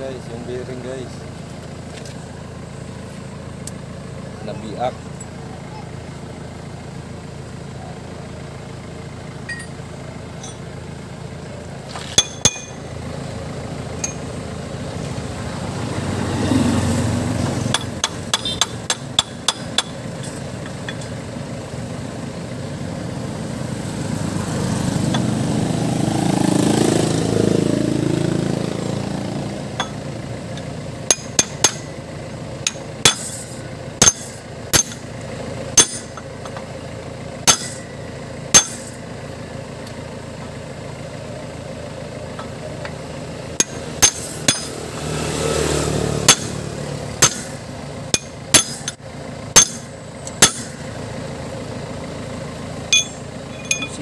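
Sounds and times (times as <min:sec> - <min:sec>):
vehicle engine: 0:00.0 - 0:54.0
hammer striking metal: 0:09.5 - 0:09.8, 0:12.2 - 0:12.8, 0:14.0 - 0:14.3, 0:17.7 - 0:21.1, 0:29.7 - 0:30.0, 0:31.0 - 0:32.0, 0:32.6 - 0:35.1, 0:35.8 - 0:36.6, 0:37.4 - 0:37.9, 0:38.5 - 0:39.0, 0:43.6 - 0:44.8, 0:46.2 - 0:46.6, 0:47.2 - 0:50.8, 0:52.9 - 0:54.0.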